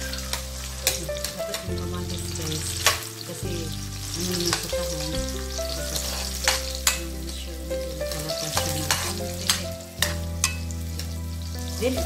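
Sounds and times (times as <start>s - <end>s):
vegetables sizzling in oil: 0.0s - 12.0s
metal spatula scraping pan: 5.9s - 7.0s, 8.1s - 11.1s.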